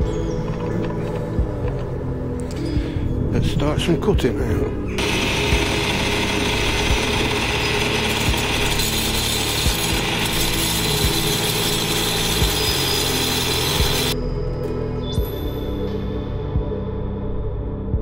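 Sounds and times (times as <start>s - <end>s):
blade cutting china: 5.0s - 14.2s
tile saw motor humming: 5.0s - 14.2s.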